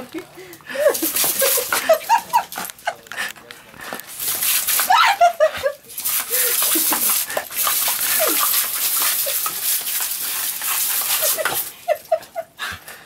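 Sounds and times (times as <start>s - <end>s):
hose nozzle spraying: 4.0s - 5.2s, 5.9s - 11.7s.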